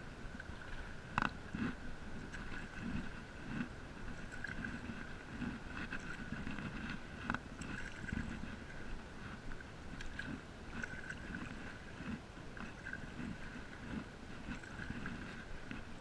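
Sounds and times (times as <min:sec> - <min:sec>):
paddle strokes in water: 0:00.0 - 0:16.0.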